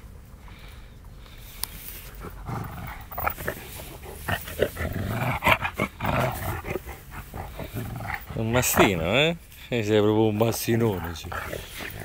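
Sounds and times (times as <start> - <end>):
dog making throaty noises: 2.1 - 9.1, 11.0 - 12.0.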